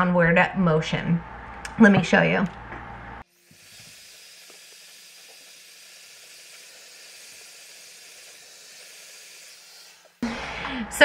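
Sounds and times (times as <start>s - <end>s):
hair dryer blowing: 3.4s - 11.0s.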